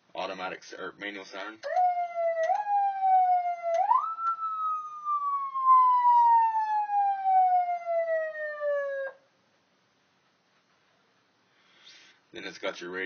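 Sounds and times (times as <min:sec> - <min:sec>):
siren wail: 0:01.6 - 0:09.2.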